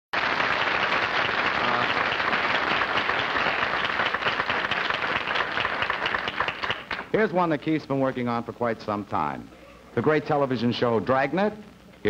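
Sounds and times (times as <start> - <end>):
audience applauding: 0.2 - 7.1.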